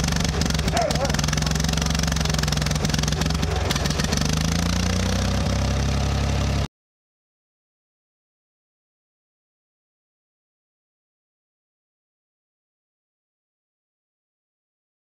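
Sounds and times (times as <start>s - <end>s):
tractor engine idling: 0.0s - 6.7s.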